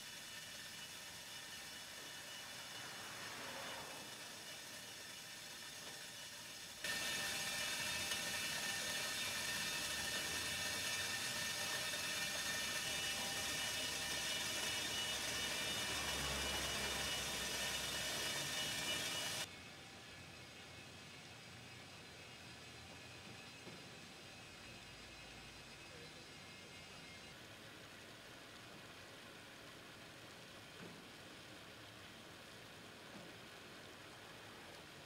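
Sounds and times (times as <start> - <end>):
high steady tones: 6.8 - 19.5
truck machinery whirring: 6.8 - 19.5.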